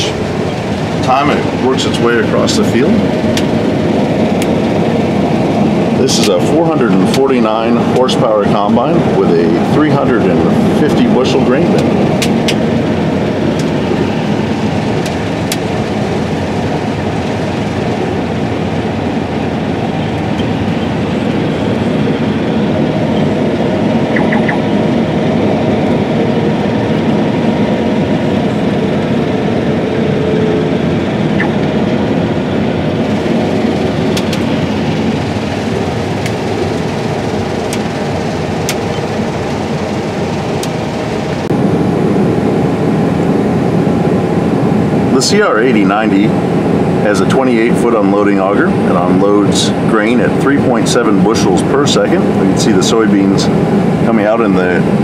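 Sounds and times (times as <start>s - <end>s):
combine harvester engine and machinery: 0.0s - 55.0s.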